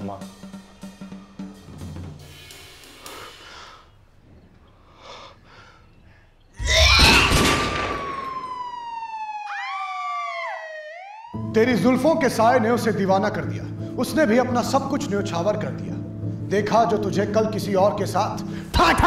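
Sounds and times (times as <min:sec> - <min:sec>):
loud dramatic hit: 0:06.6 - 0:08.6
slowly falling tone: 0:06.6 - 0:11.5
police siren wail: 0:06.6 - 0:13.0.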